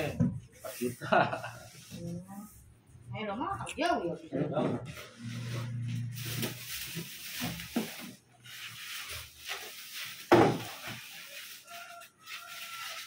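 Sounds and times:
plastic wrap crinkling: 0:06.0 - 0:13.0.

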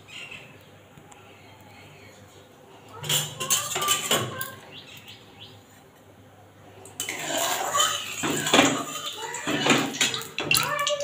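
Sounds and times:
steel utensils clattering: 0:03.0 - 0:04.6, 0:07.0 - 0:11.0.

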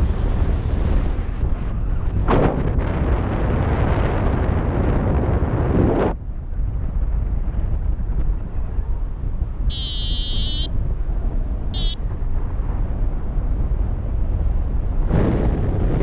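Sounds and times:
wind noise on microphone: 0:00.0 - 0:16.0
variometer beeping: 0:09.7 - 0:10.7, 0:11.7 - 0:12.0.

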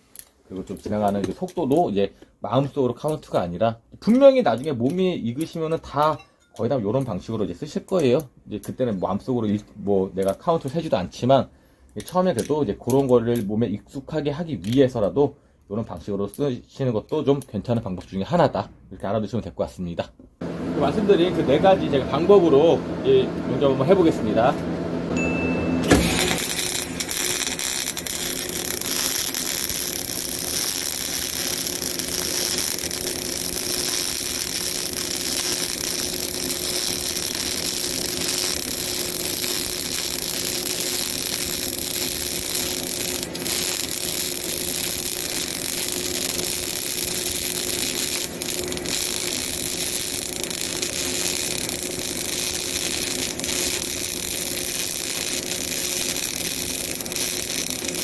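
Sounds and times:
welding arc crackling hiss: 0:00.0 - 0:01.6, 0:25.8 - 0:58.0.

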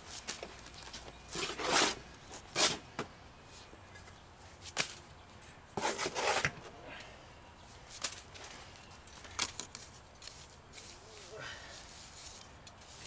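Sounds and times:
trowel scraping mortar on stone: 0:01.3 - 0:02.0, 0:05.8 - 0:06.5.

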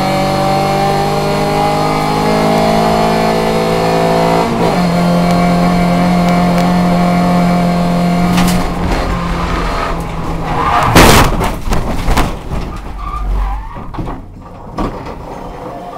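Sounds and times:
race car engine at high revs: 0:00.0 - 0:11.0
tyres skidding: 0:00.9 - 0:15.9
car crashing into metal guardrail: 0:08.3 - 0:15.6.

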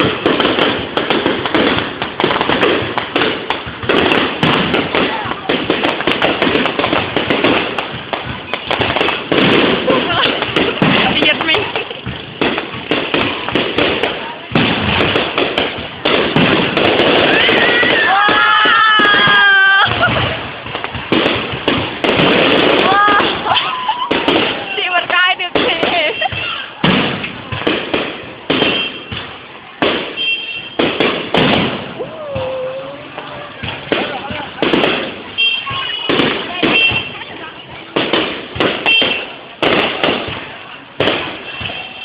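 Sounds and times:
fireworks bursting: 0:00.0 - 0:42.0
high-pitched wail: 0:17.2 - 0:20.1.

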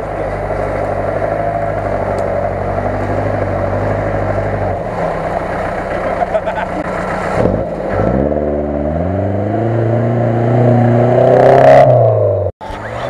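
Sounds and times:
vehicle wading through water: 0:00.0 - 0:09.1
off-road vehicle engine running: 0:00.0 - 0:13.0.

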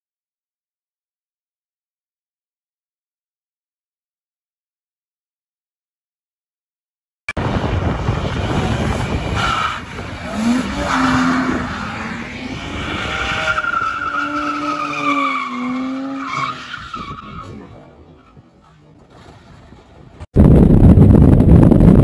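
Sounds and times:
tyres squealing on asphalt: 0:08.2 - 0:20.1.

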